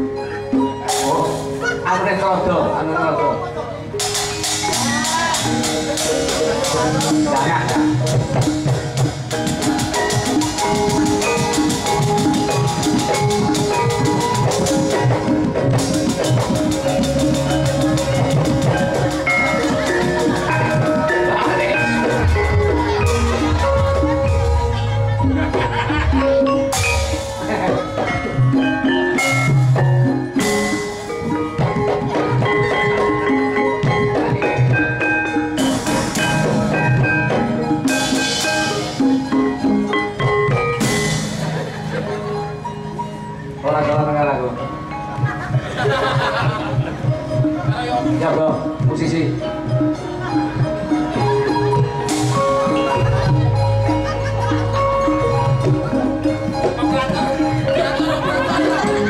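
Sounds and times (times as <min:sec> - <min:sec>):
ringing metallophones: 0:00.0 - 0:59.0
drums fast even beat: 0:04.0 - 0:41.8.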